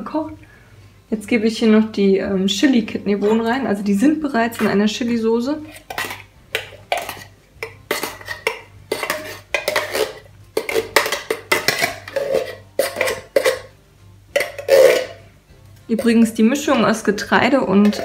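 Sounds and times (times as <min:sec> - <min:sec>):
metal spoon scraping a tin can: 0:03.2 - 0:03.7, 0:04.5 - 0:13.7, 0:14.3 - 0:15.2, 0:15.9 - 0:16.9, 0:17.7 - 0:18.0.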